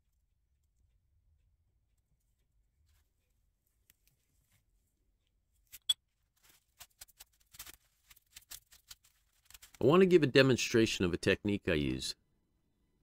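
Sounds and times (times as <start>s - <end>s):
paper towel rustling and scraping: 6.2s - 10.1s.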